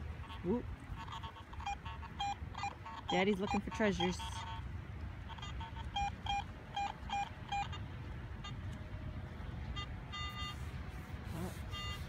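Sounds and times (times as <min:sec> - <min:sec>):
low steady rumble: 0:00.0 - 0:12.0
metal detector beeps: 0:05.9 - 0:07.8, 0:09.7 - 0:10.6, 0:11.7 - 0:12.0.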